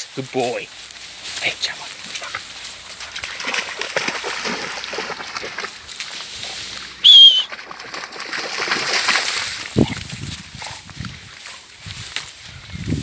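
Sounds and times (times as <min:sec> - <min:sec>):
puppy splashing through puddle: 0:01.8 - 0:11.8
loud high whistle: 0:07.0 - 0:07.5.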